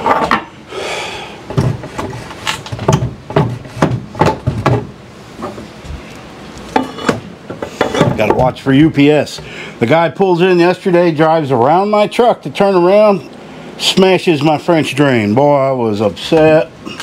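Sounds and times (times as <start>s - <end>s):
wooden knocks and clunks: 1.5s - 6.0s.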